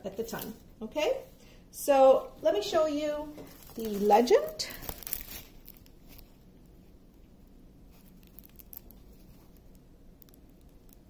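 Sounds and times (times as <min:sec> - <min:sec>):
plastic crinkling and ticks: 0:03.4 - 0:11.0.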